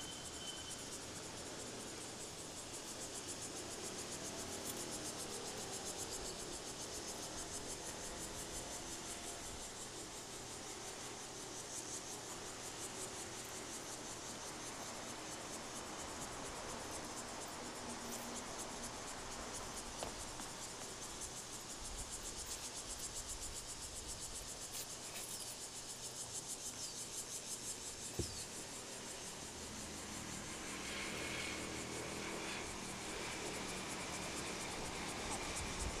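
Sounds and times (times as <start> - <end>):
insects chirring: 0.0 - 36.0.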